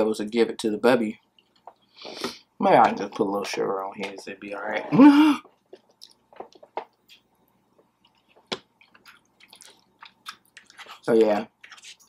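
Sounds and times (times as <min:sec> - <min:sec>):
wet chewing mouth sounds: 0:08.0 - 0:10.8.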